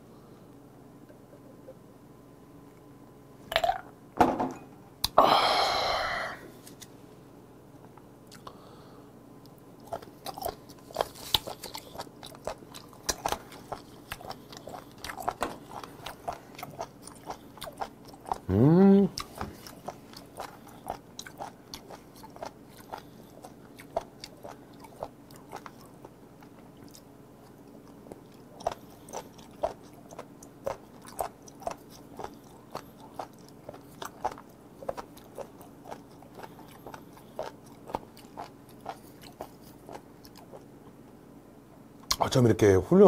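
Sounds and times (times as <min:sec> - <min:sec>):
crunchy chewing: 0:09.4 - 0:41.0.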